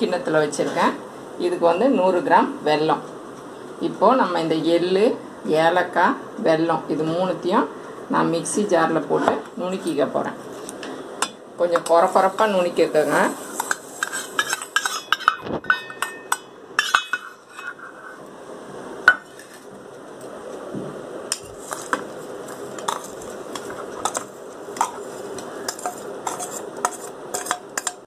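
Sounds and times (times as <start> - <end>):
metal spoon clinking on steel bowls: 13.6 - 17.8, 25.7 - 28.0
soft scraping and sliding: 17.2 - 18.3.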